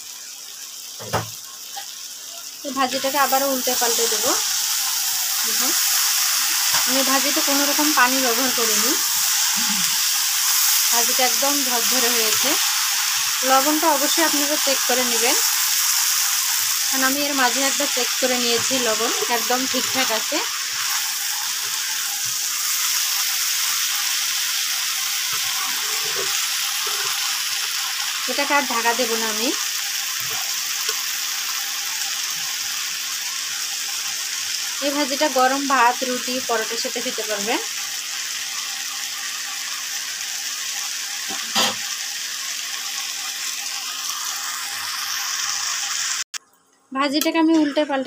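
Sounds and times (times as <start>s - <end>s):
vegetables sizzling in oil: 0.0s - 46.4s, 47.0s - 48.0s
spatula scraping pan: 25.3s - 27.8s, 41.3s - 41.9s.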